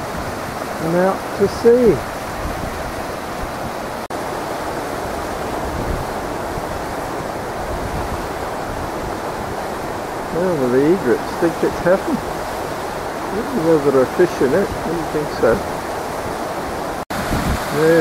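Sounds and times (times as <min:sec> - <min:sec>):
flood water rushing: 0:00.0 - 0:18.0.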